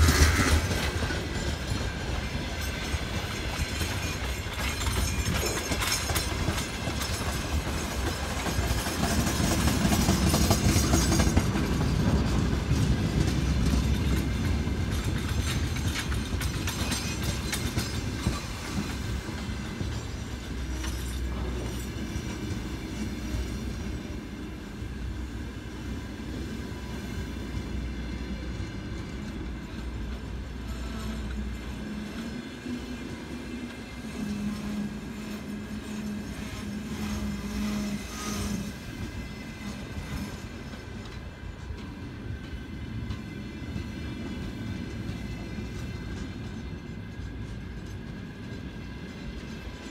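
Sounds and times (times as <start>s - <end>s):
wheels clattering over rail joints: 0.0s - 22.9s
freight train rolling past: 0.0s - 49.9s.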